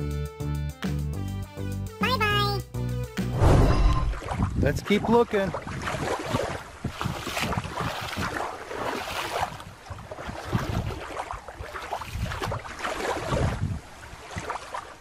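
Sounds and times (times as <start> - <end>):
wind buffeting microphone: 3.4 - 14.5
moving through shallow water: 3.7 - 15.0.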